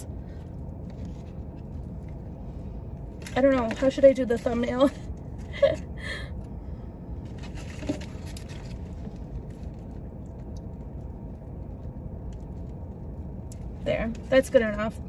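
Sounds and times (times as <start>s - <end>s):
low rumble inside car cabin: 0.0s - 15.0s
rustling and scraping handling noises: 0.8s - 5.8s, 7.2s - 10.0s.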